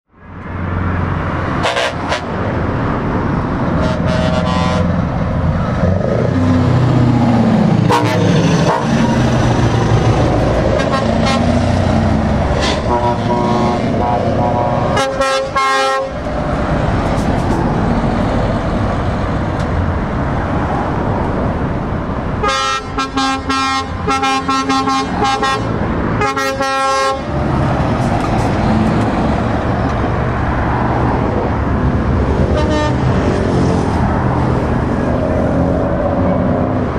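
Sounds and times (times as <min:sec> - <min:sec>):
lorries driving past: 0:00.1 - 0:36.9
air horn blasts: 0:01.6 - 0:02.3, 0:03.8 - 0:04.9, 0:07.9 - 0:09.1, 0:10.8 - 0:11.6, 0:12.6 - 0:16.2, 0:22.4 - 0:27.3, 0:32.5 - 0:33.1.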